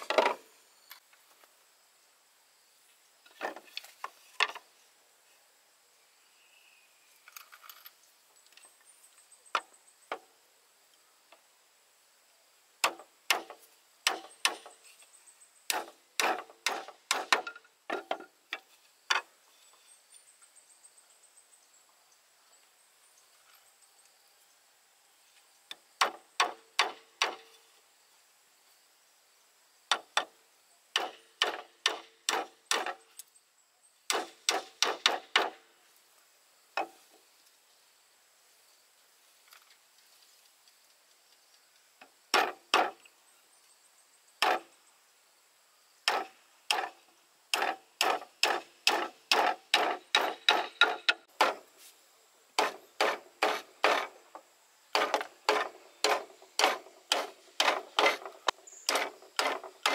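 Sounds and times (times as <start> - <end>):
bamboo being struck: 12.8 - 14.7, 15.7 - 19.3, 26.0 - 27.5, 31.0 - 33.0, 34.1 - 35.6, 42.3 - 43.1, 44.4 - 44.7, 46.1 - 51.8, 52.6 - 54.2, 54.9 - 59.9.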